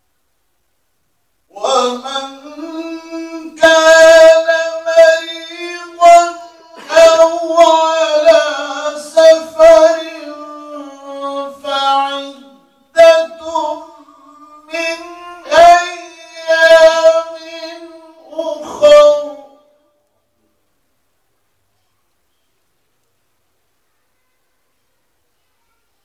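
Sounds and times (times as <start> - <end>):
man reciting melodically: 1.5 - 20.4.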